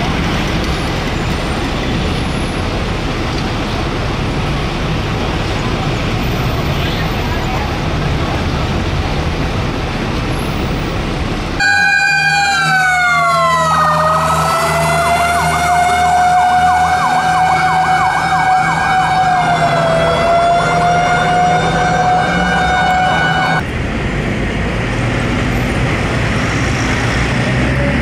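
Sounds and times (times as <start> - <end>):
street traffic noise: 0.0 - 28.0
emergency vehicle siren: 11.5 - 23.6.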